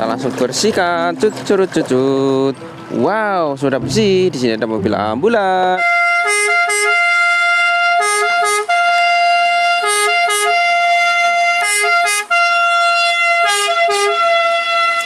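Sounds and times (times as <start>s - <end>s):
ambulance siren: 5.8s - 15.0s.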